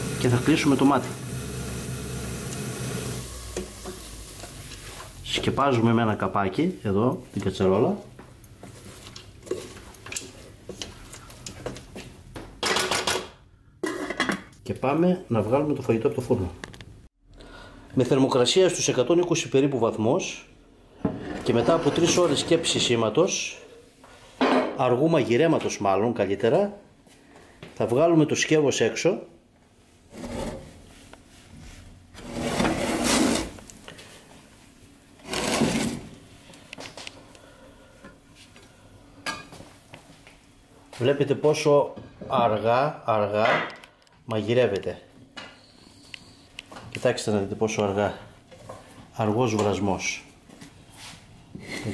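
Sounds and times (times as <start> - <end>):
wooden spoon scraping saucepan: 21.0 - 23.0, 30.1 - 30.9, 32.2 - 33.6, 35.2 - 36.2.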